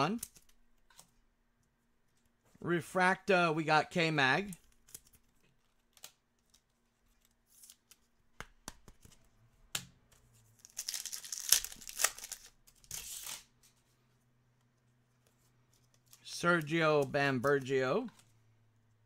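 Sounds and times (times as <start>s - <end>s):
card wrapper tearing and crinkling: 10.6s - 13.5s.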